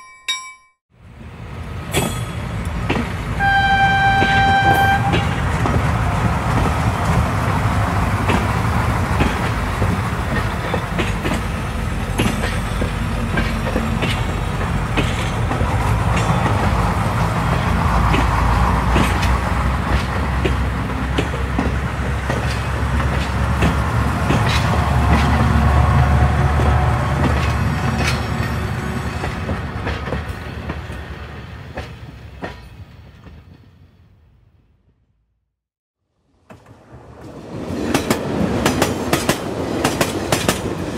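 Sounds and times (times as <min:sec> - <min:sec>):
train low rumble: 0:01.0 - 0:34.5.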